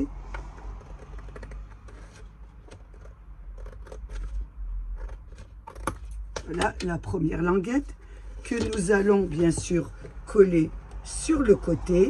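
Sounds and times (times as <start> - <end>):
scissors snipping cardboard: 0.9 - 4.4.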